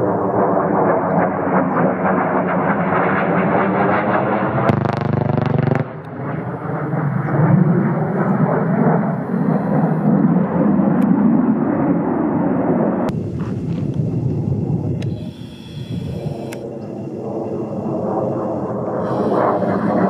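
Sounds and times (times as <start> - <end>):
jet engines rumbling: 0.0 - 20.0
rapid cannon fire: 4.6 - 6.4.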